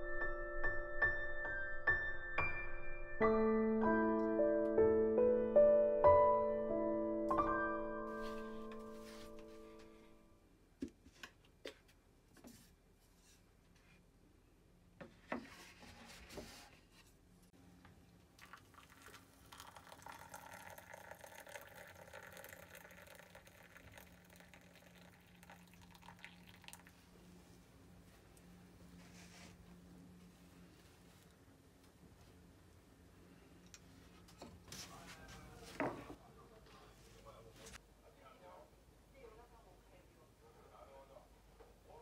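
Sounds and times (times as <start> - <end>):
water pouring into a mug: 18.4 - 27.1.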